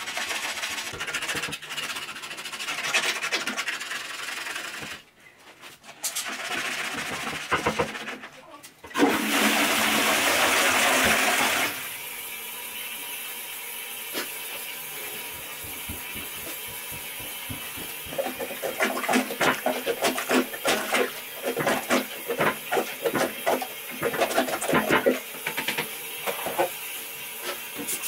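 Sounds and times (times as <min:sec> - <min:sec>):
toilet flushing: 0:08.9 - 0:28.0
cistern refilling hiss: 0:10.5 - 0:19.0
rubber plunger in toilet bowl: 0:14.1 - 0:26.8.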